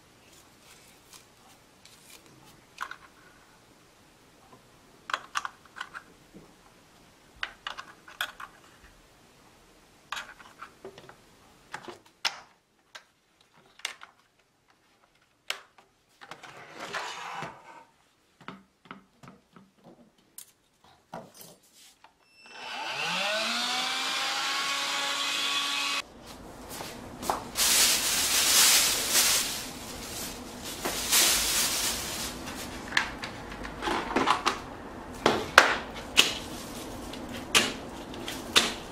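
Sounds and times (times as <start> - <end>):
small motor whining: 22.5 - 26.0
plastic bag crinkling: 27.5 - 32.9.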